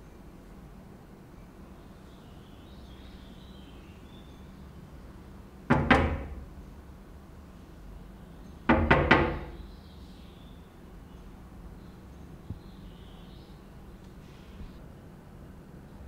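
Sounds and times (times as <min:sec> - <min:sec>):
knocking on a door: 0:05.7 - 0:06.5, 0:08.7 - 0:09.6.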